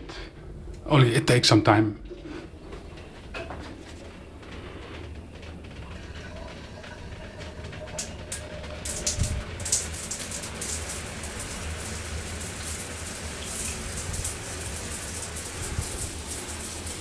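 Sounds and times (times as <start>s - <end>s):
shower water spraying on tiles: 5.8s - 17.0s.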